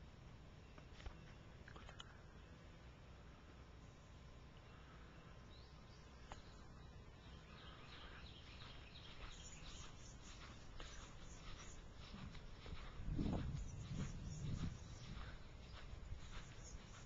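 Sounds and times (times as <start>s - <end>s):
faint low rumble: 0.0s - 17.0s
faint high chirps: 4.6s - 17.0s.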